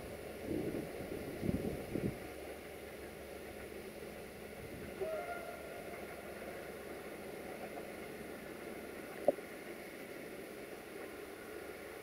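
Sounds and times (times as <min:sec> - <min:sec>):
steady background hiss: 0:00.0 - 0:12.0
distant locomotive horn: 0:04.9 - 0:06.7.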